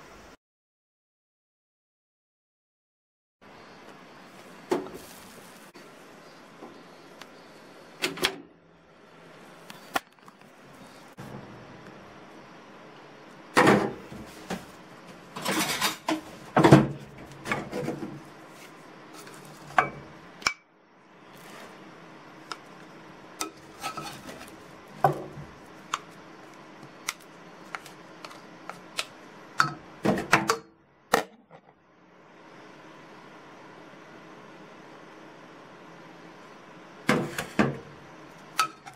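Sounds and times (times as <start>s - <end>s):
rice paddle scraping metal pot: 23.4s - 24.7s.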